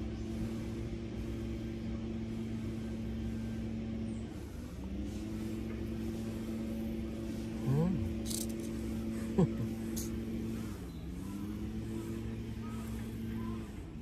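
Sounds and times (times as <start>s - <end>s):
vehicle engine idling: 0.0s - 14.0s.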